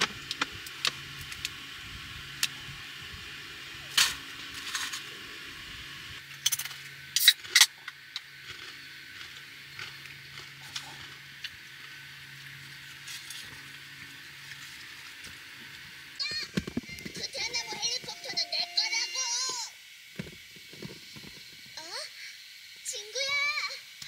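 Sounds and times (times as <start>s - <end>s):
clicks and crackles of handling chips: 0.0s - 1.6s, 6.3s - 15.8s.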